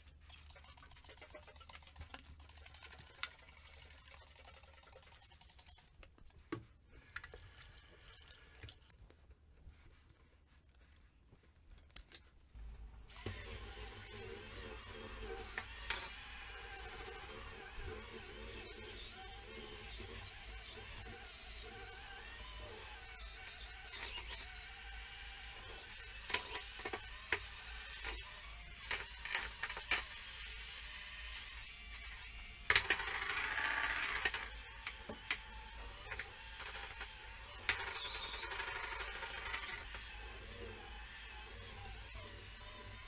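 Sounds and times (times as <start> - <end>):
spin scrubber motor whirring: 13.1 - 43.0.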